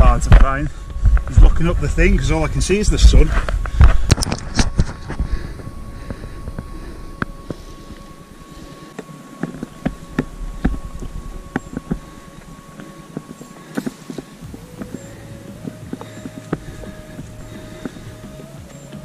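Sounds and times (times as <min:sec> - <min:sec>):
wind rumble on microphone: 0:00.0 - 0:19.0
hands and shoes scuffing rock: 0:08.8 - 0:19.0.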